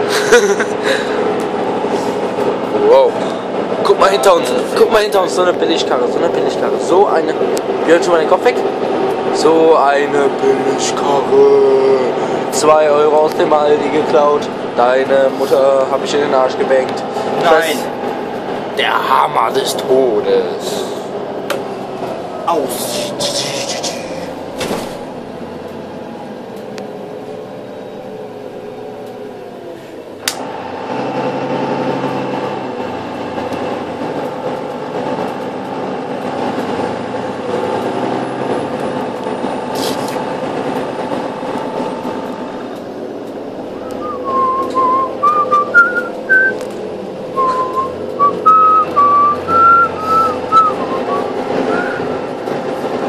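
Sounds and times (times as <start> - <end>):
bus engine drone: 0.0 - 53.0
person whistling a tune: 43.8 - 46.6, 47.4 - 52.1.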